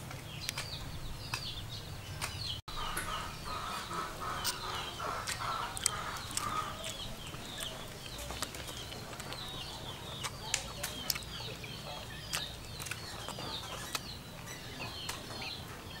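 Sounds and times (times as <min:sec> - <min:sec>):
birds chirping: 0:00.0 - 0:16.0
sharp clicks: 0:00.1 - 0:03.1.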